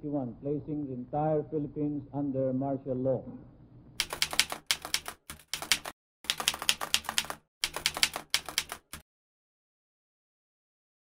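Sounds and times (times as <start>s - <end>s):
keyboard keystrokes clacking: 4.0s - 9.0s.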